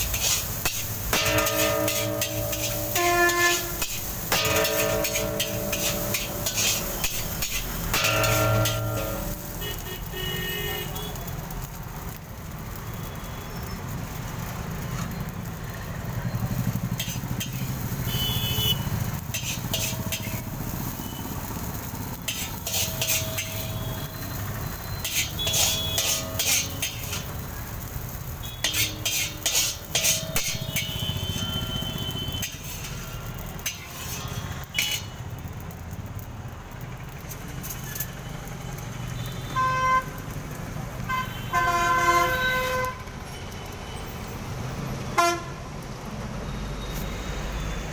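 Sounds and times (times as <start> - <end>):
metal spatula scraping a wok: 0.0 - 10.1, 16.4 - 35.2, 37.3 - 38.2.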